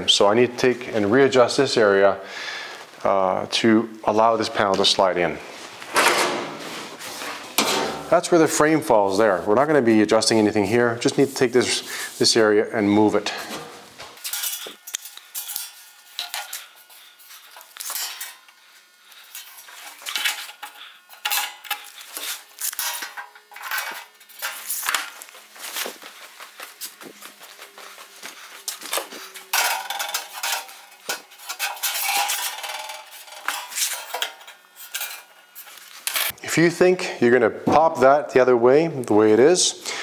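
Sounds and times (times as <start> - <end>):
metal scraping: 6.0 - 8.7, 13.2 - 26.0, 26.7 - 36.4
metal clinks and knocks: 28.6 - 35.3.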